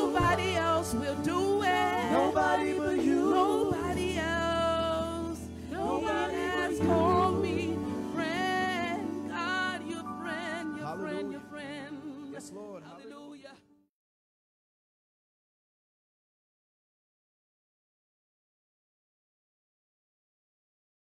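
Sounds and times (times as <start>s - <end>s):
gospel singers with vibrato: 0.0s - 13.6s.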